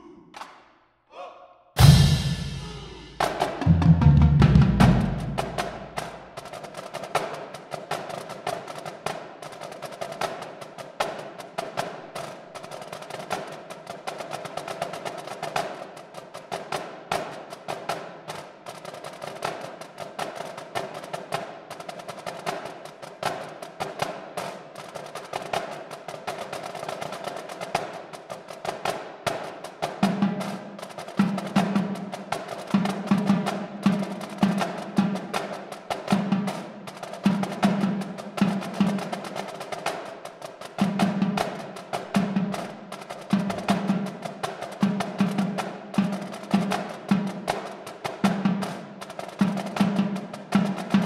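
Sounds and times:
deeper drum hits: 1.8s - 6.0s
cymbals: 1.8s - 6.2s
snare drums playing fast strokes: 1.8s - 51.0s.

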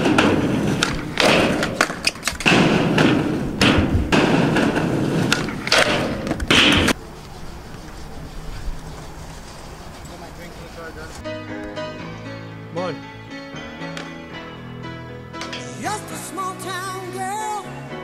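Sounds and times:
skateboard knocks and thuds: 0.0s - 7.0s
skateboard wheels rolling on concrete: 0.0s - 11.8s.

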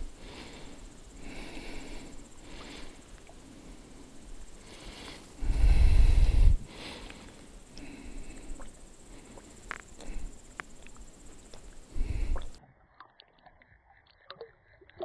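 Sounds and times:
soft breathy noises: 0.0s - 12.6s
low rumble on microphone: 5.4s - 6.8s.

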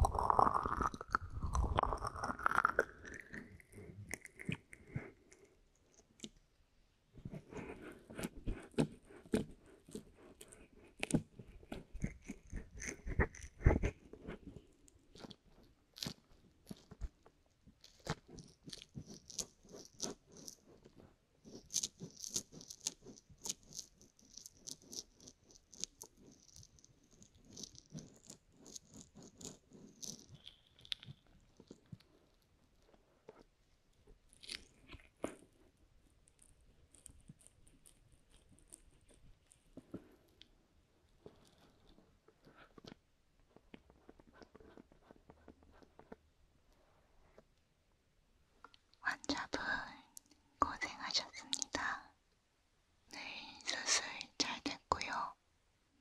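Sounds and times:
fingers rubbing on microphone: 0.0s - 5.3s, 7.2s - 17.2s, 17.8s - 33.4s, 41.2s - 47.5s.

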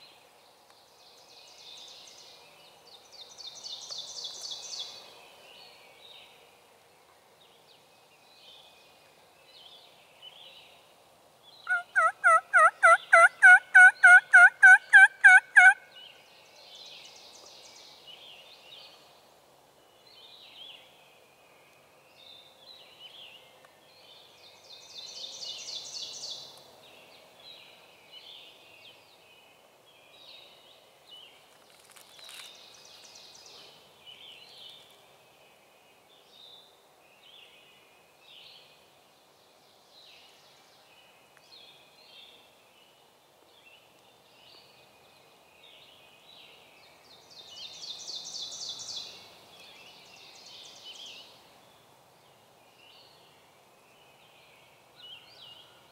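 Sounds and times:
small birds chirping faintly: 0.0s - 55.9s
turkey yelping: 11.7s - 15.8s.

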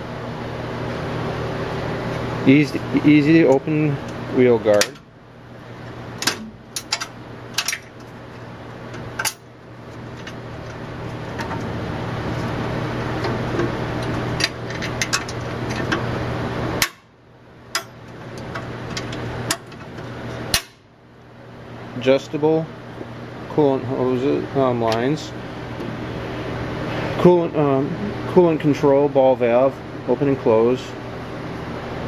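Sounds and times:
steady machine hum: 0.0s - 32.0s
metal latch and lid clanking: 4.7s - 5.0s, 6.2s - 7.9s.

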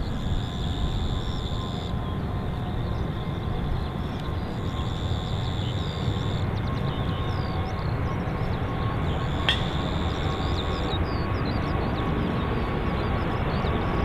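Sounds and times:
jet engines rumble and whine: 0.0s - 14.0s.

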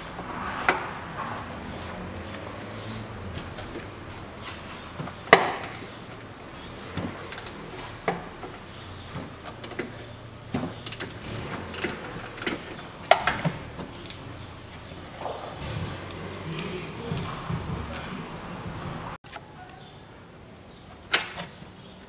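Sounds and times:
ringing metal clink: 14.0s - 14.5s, 16.5s - 18.4s.

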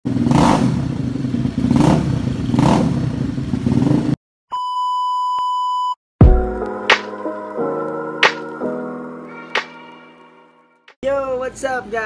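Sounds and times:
scooter engine revving: 0.0s - 4.2s.

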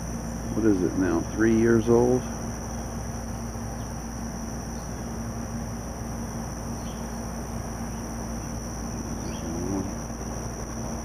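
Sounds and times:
high-pitched insect chorus: 0.0s - 11.0s
low hum: 4.8s - 11.0s.

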